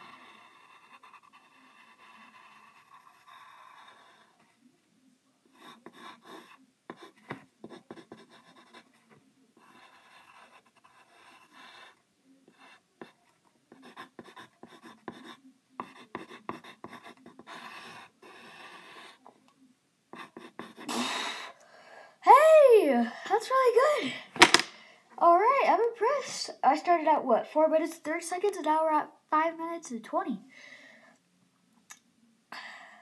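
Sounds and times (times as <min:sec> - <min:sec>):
pencil scratching on paper: 0:00.0 - 0:04.6, 0:05.5 - 0:19.2, 0:20.1 - 0:20.9.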